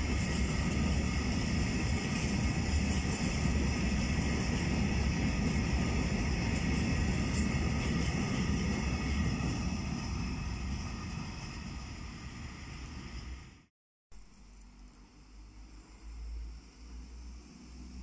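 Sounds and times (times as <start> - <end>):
freight train wheels rumbling: 0.0 - 13.7.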